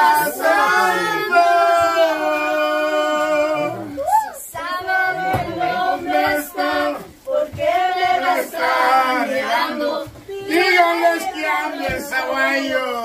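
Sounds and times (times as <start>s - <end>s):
group singing together: 0.0s - 13.0s.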